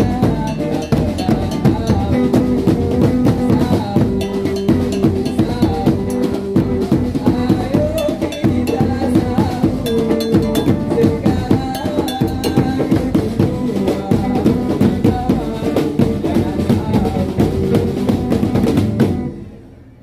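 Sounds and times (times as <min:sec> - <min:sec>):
rapid drum strokes: 0:00.0 - 0:19.3
repeated melodic line: 0:00.4 - 0:02.2, 0:07.9 - 0:13.0.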